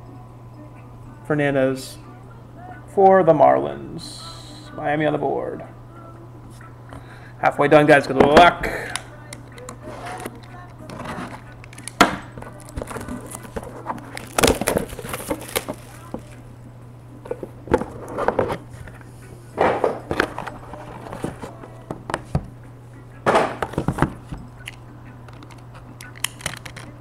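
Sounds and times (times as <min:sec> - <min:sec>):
steady low hum: 0:00.0 - 0:27.0
packaging rustling and crackling: 0:10.0 - 0:16.4.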